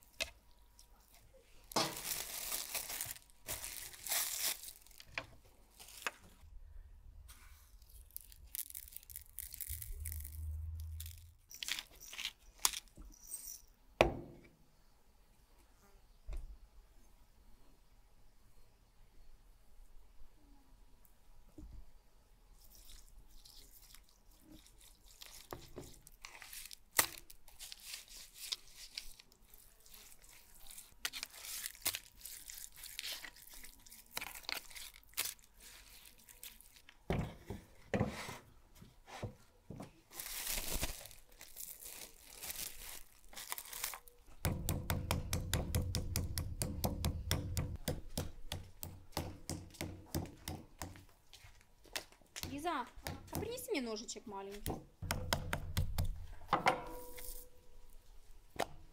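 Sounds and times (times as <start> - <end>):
wet squelching of meat: 22.6 - 37.0
meat mallet pounding: 44.4 - 50.9, 55.0 - 56.2.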